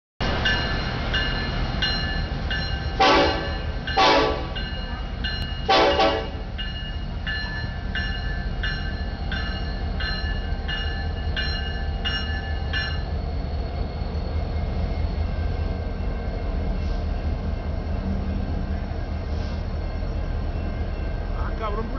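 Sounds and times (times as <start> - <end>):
crossing warning bell ringing: 0.2 - 21.9
locomotive air horn blasts: 3.0 - 4.6, 5.7 - 6.4.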